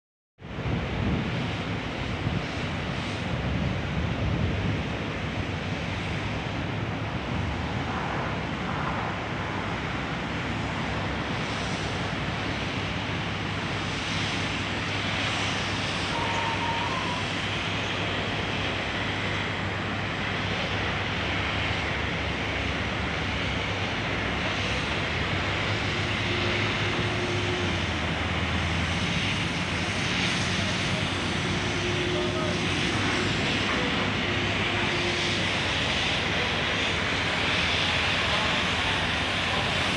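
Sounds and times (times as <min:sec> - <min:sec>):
wind buffeting microphone: 0:00.4 - 0:15.8
diesel engine drone: 0:00.4 - 0:39.9.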